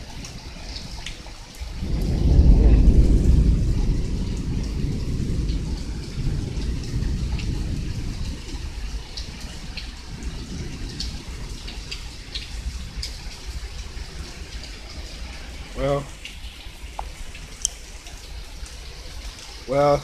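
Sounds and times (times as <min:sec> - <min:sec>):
heavy rain pouring: 0:00.0 - 0:20.0
raindrops ticking close by: 0:00.0 - 0:20.0
low rumble: 0:01.8 - 0:08.8.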